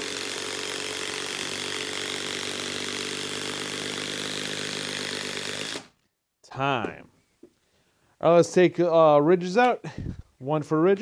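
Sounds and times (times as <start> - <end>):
impact driver hammering: 0.0 - 5.9.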